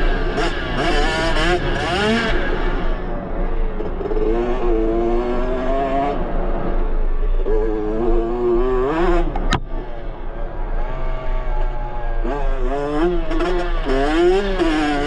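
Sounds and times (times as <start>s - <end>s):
two-stroke engine revving: 12.6s - 15.0s.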